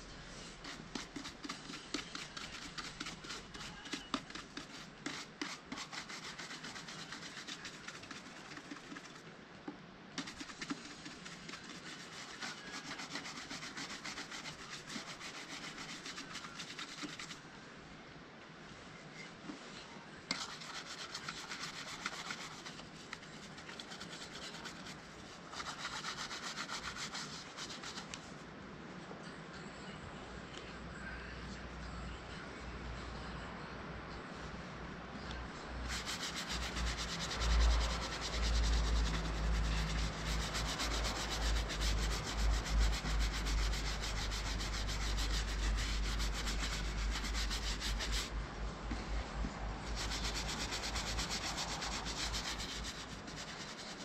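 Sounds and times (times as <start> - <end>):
shoe brush scratching leather: 0.0 - 9.3, 10.2 - 17.4, 20.3 - 28.2, 35.8 - 48.4, 49.8 - 54.0.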